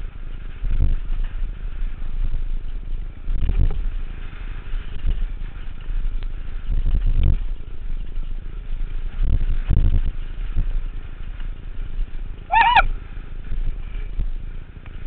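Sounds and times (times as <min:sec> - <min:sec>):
mountain bike rattling on dirt trail: 0:00.0 - 0:15.0
wind buffeting microphone: 0:00.0 - 0:15.0
high wavering squeal: 0:12.5 - 0:12.9.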